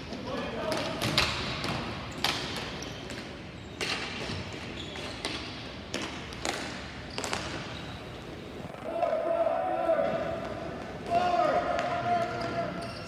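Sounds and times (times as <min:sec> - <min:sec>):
ball hitting rink boards: 0:05.2 - 0:07.7.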